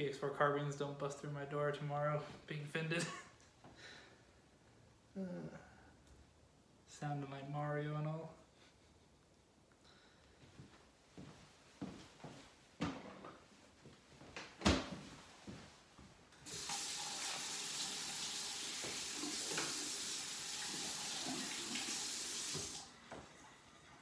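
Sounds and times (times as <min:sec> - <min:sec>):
tap water running: 0:16.4 - 0:24.0.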